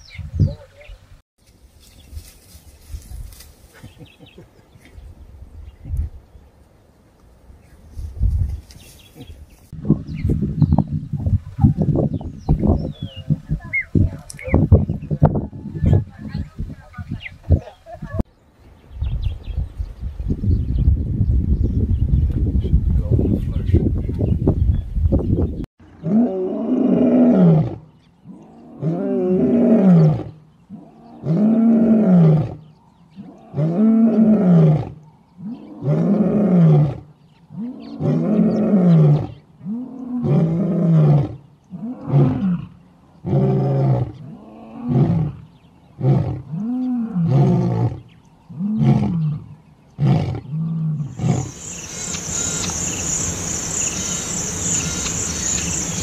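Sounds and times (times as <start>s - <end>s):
lion roaring: 25.9s - 45.4s, 50.0s - 56.0s
high insect drone: 51.2s - 56.0s.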